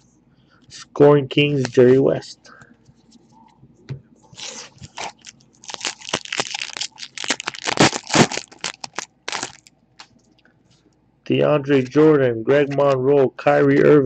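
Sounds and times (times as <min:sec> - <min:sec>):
foil wrapper crinkling and tearing: 0:04.4 - 0:10.1.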